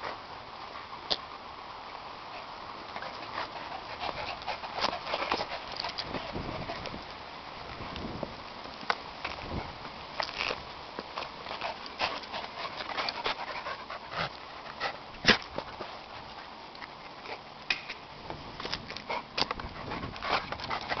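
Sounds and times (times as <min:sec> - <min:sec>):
small dogs panting and sniffing: 0:02.1 - 0:07.2, 0:09.3 - 0:17.8, 0:18.6 - 0:21.0.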